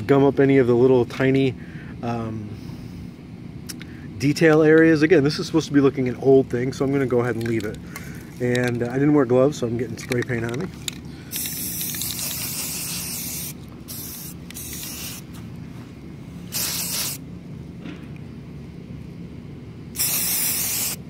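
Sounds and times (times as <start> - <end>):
spray can hissing: 11.3 - 15.4, 16.5 - 17.2, 20.0 - 21.0.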